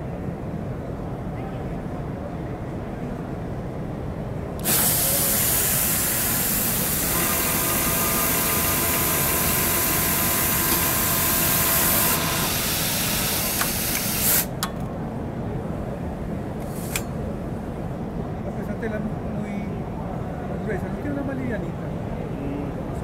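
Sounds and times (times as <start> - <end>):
sewing machine whining: 4.6 - 14.5
compressed air hissing: 4.6 - 14.6.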